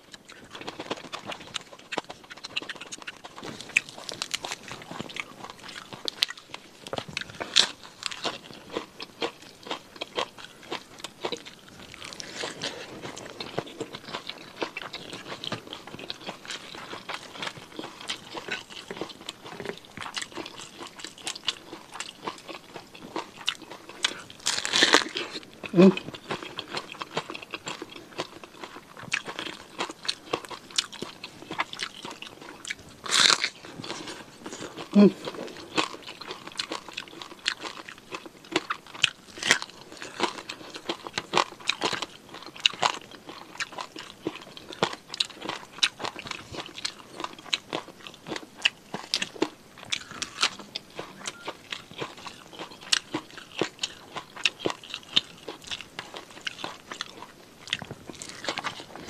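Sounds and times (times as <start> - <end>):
chewing and crunching: 0.0 - 59.0.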